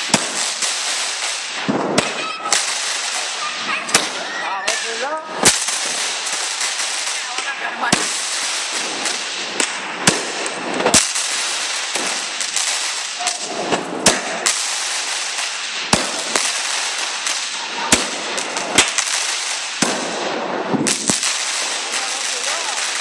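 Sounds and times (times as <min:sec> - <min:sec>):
fireworks crackle: 0:00.0 - 0:23.0
fireworks loud bangs: 0:00.0 - 0:23.0.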